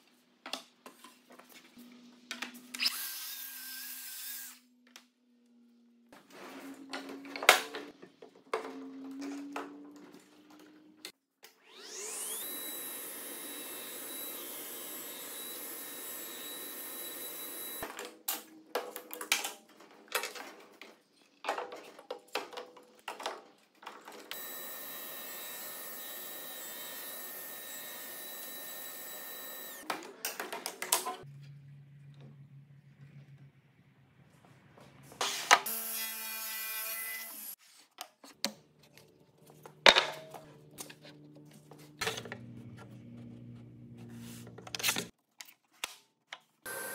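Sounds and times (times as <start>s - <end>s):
table saw whining: 11.5s - 17.8s, 24.3s - 29.9s, 46.7s - 46.9s.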